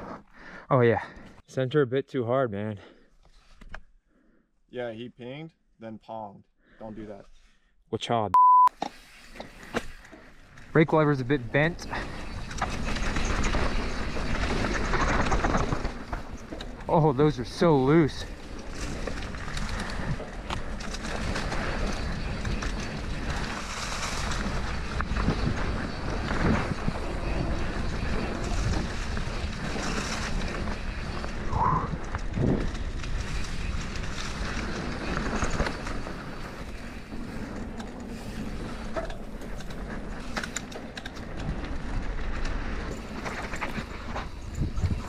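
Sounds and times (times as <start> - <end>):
tyres rushing on loose dirt: 10.5 - 45.0
bike knocks and rattles: 12.0 - 16.9
wind buffeting microphone: 21.1 - 37.5, 42.9 - 45.0.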